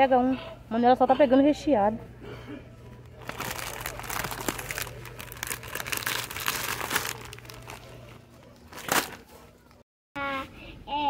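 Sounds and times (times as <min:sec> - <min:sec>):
plastic snack bags crinkling: 0:03.1 - 0:09.4.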